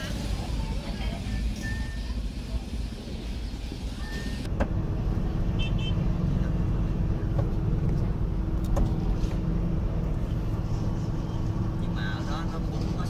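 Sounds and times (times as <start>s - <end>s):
motorbike and truck engines rumbling: 0.0s - 13.0s
short high beeps: 1.5s - 2.2s.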